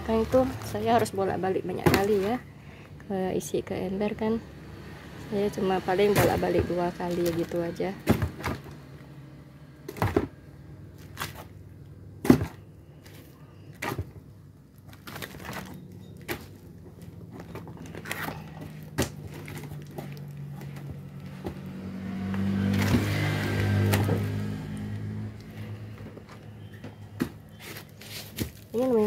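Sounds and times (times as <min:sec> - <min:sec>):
fruits thudding into bucket: 0:06.0 - 0:08.8, 0:09.9 - 0:10.4, 0:12.2 - 0:12.7, 0:22.3 - 0:24.6.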